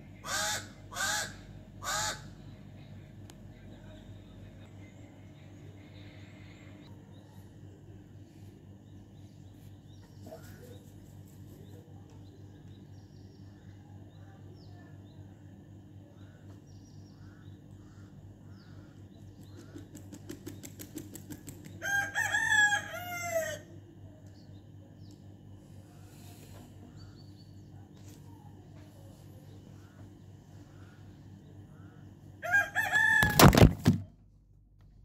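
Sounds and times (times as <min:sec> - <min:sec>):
steady low hum: 0:00.0 - 0:20.7, 0:21.3 - 0:35.0
small birds chirping: 0:02.3 - 0:21.8, 0:24.2 - 0:32.4
rooster crowing: 0:21.8 - 0:23.8, 0:32.4 - 0:33.6.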